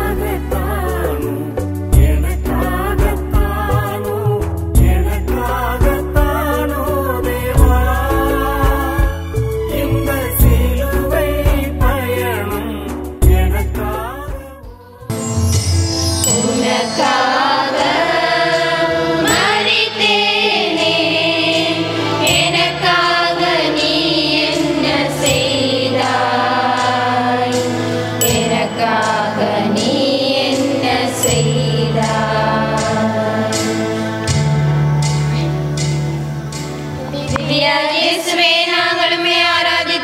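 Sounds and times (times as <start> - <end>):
small choir singing a hymn: 0.0 - 9.3, 16.2 - 34.9, 37.1 - 40.0.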